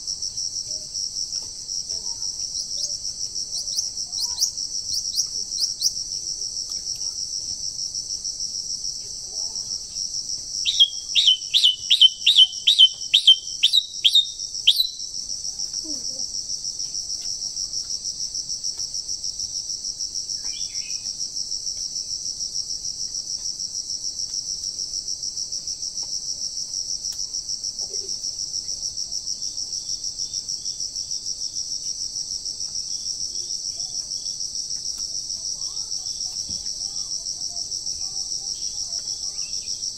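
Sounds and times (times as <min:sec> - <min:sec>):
insects droning: 0:00.0 - 0:39.9
songbird calling: 0:02.4 - 0:06.0, 0:10.6 - 0:15.1.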